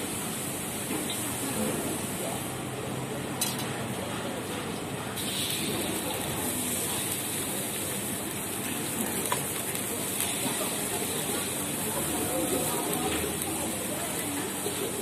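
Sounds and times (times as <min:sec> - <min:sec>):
gas burner hissing: 0:00.0 - 0:04.0, 0:05.1 - 0:15.0
oil sizzling: 0:05.2 - 0:15.0.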